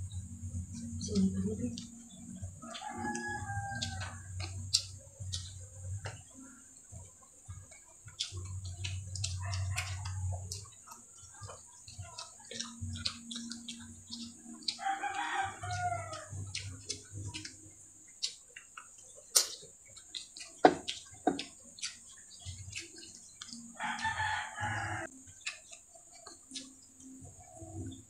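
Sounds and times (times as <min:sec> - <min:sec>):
chewing and lip smacks: 0:00.1 - 0:28.0
rooster crowing: 0:02.6 - 0:04.6, 0:14.8 - 0:16.5, 0:23.8 - 0:25.1
sharp mouth clicks: 0:03.0 - 0:06.3, 0:07.5 - 0:14.8, 0:18.2 - 0:23.7, 0:25.3 - 0:27.9.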